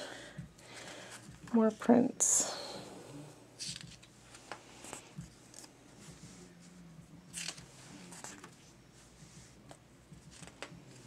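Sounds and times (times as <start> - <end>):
book page turning: 3.6 - 5.7, 7.3 - 8.7.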